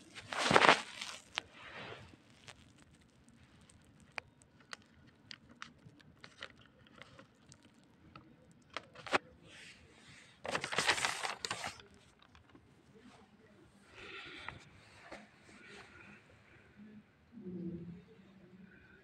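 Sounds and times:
newspaper rustling: 0.0 - 3.9, 8.7 - 9.2, 10.4 - 12.5.

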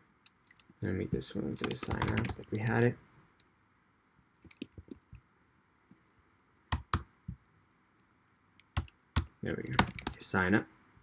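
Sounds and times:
computer keyboard keystrokes: 1.6 - 2.9, 8.6 - 10.2.

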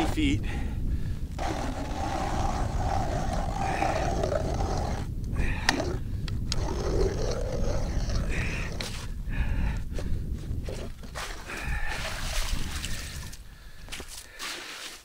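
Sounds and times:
ice auger grinding through ice: 1.4 - 5.1.

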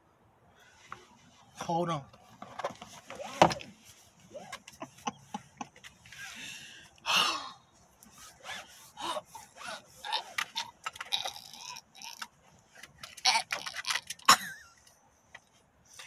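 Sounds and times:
seatbelt scraping on fabric: 2.3 - 4.5, 8.0 - 10.4
person grunting and gasping: 7.0 - 7.6.

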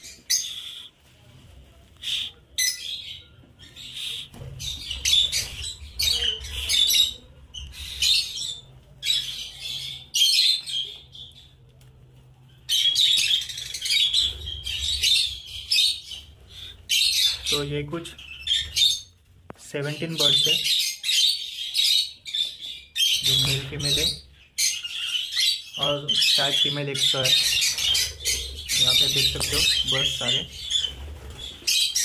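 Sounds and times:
lovebirds chirping: 0.0 - 1.2, 1.9 - 32.0.

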